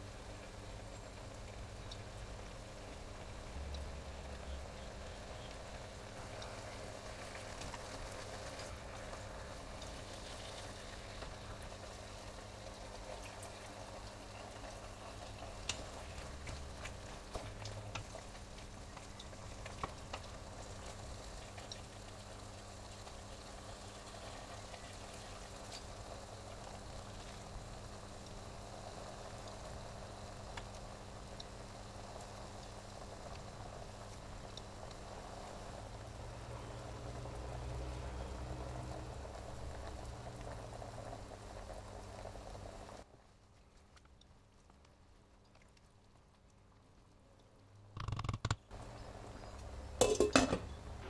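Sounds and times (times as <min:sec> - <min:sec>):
pans bubbling and sizzling: 0:00.0 - 0:51.0
spoon knocking against pot: 0:50.0 - 0:50.7.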